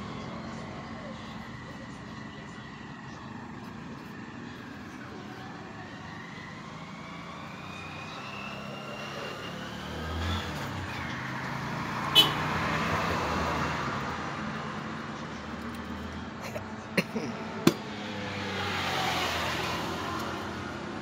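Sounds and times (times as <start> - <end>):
motor vehicle passing: 5.4 - 16.3, 17.4 - 21.0.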